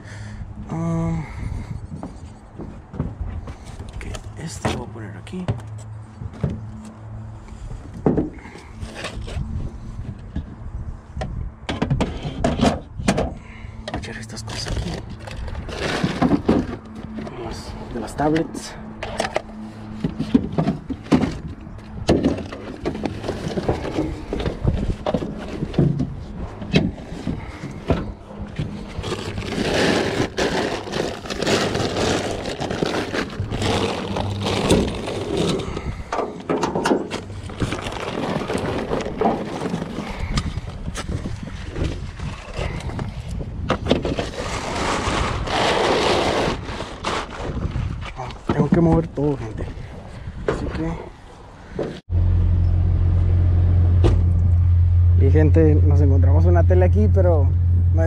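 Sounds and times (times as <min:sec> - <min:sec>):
objects knocking and scraping: 0:07.8 - 0:10.6, 0:11.2 - 0:49.8.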